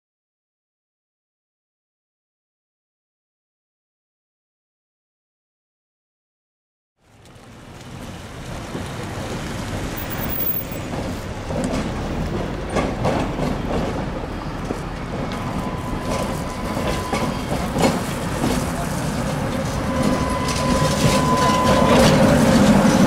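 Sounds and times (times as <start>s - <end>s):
tram rumbling: 7.0s - 23.0s
tram wheels knocking on rails: 7.8s - 23.0s.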